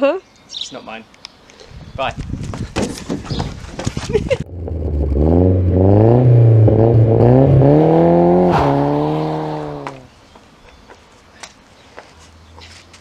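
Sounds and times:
car engine revving: 4.5 - 10.1.

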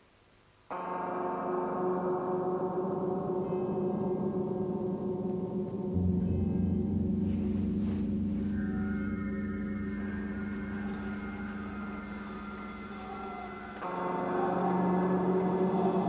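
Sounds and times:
gong-like metallic tone: 0.7 - 16.0
deep low drone: 4.9 - 16.0.

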